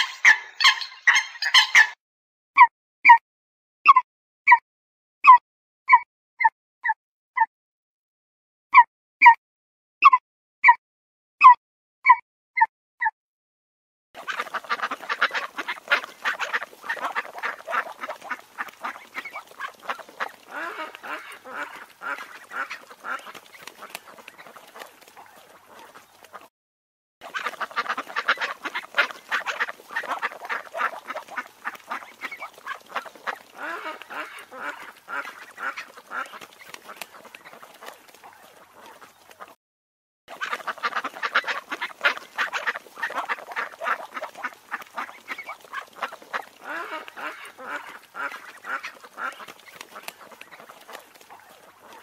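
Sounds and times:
ducks quacking: 0.0 - 2.0, 14.2 - 26.5, 27.2 - 39.6, 40.3 - 52.0.

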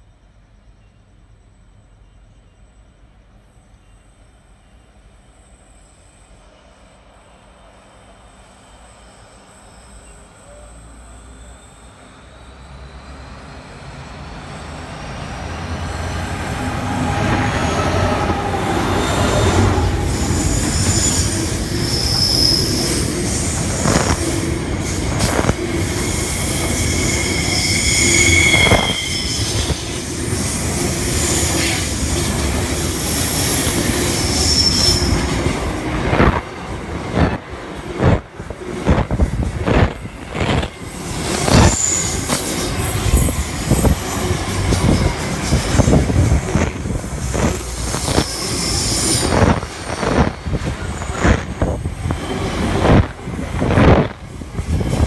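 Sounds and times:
train wheel rumble: 4.9 - 55.0
high-pitched wheel squeal: 8.6 - 15.2, 15.8 - 36.4, 39.8 - 46.7, 47.4 - 53.1.

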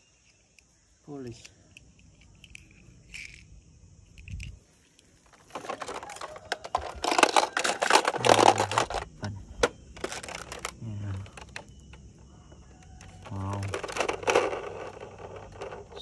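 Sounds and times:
plastic toy cars clattering: 2.4 - 3.5, 5.2 - 12.0, 12.8 - 16.0.

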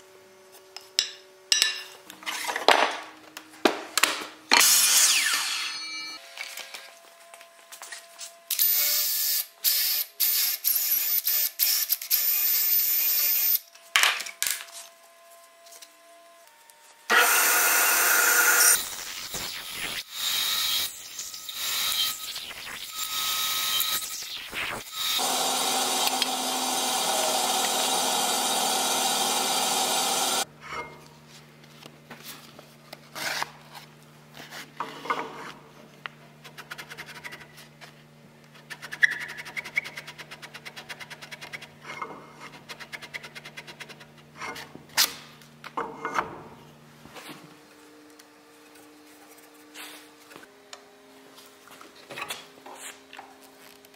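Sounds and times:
bandsaw cutting wood: 17.1 - 20.9, 24.8 - 30.5.

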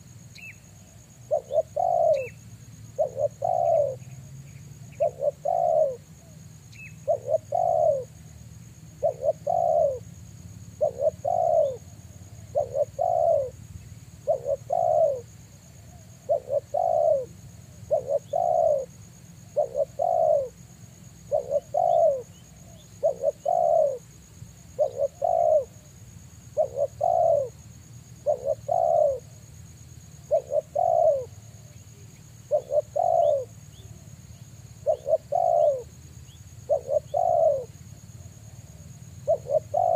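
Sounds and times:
dove cooing: 0.0 - 8.2, 8.9 - 10.1, 10.7 - 13.6, 14.2 - 25.9, 26.5 - 29.4, 30.1 - 39.9.

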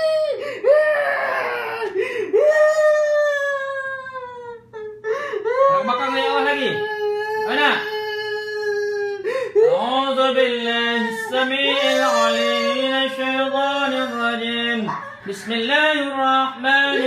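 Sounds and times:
man wailing in sing-song tones: 10.9 - 17.0.

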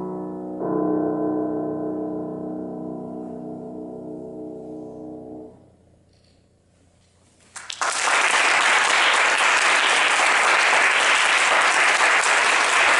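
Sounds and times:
grand piano chord: 0.0 - 6.0
audience applause: 7.6 - 12.9.

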